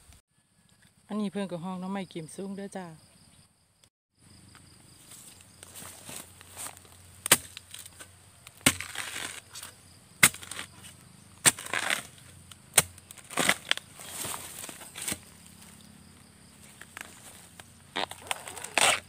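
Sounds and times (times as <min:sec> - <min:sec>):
bamboo shoot crunching: 0:04.5 - 0:19.0
metal spade chopping: 0:07.2 - 0:08.0, 0:08.6 - 0:15.3.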